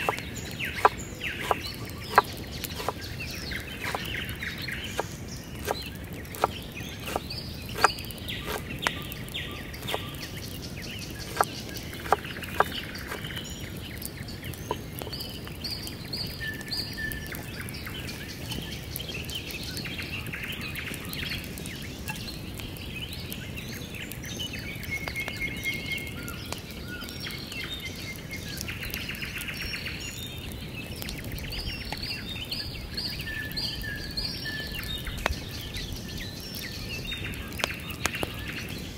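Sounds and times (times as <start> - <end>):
birds chirping: 0.0 - 38.9
knife chopping on wooden board: 0.8 - 3.0, 3.8 - 4.1, 6.4 - 7.2, 7.8 - 8.6, 11.3 - 13.2.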